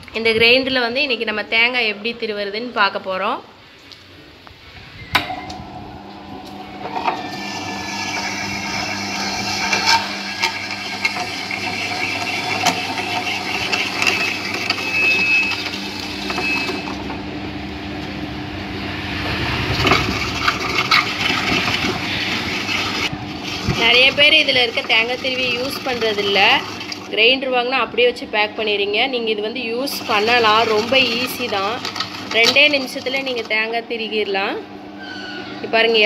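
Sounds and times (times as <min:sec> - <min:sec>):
grinder motor humming: 0:05.2 - 0:27.5, 0:28.2 - 0:35.1
coconut grating: 0:06.5 - 0:17.1, 0:19.6 - 0:27.1, 0:29.8 - 0:33.6.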